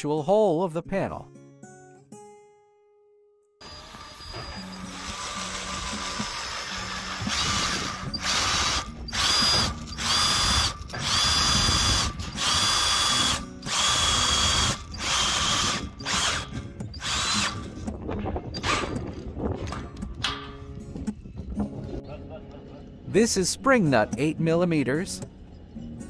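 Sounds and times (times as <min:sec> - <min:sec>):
cordless drill motor whining: 0:03.6 - 0:17.7.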